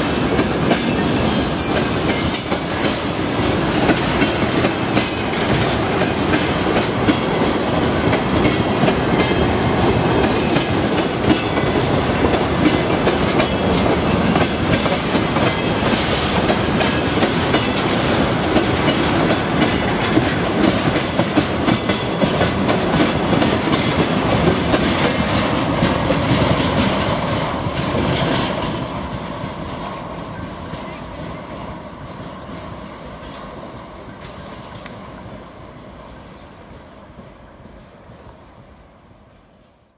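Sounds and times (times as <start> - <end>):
wheels clacking over rail joints: 0.0 - 36.8
freight train rumbling past: 0.0 - 39.9.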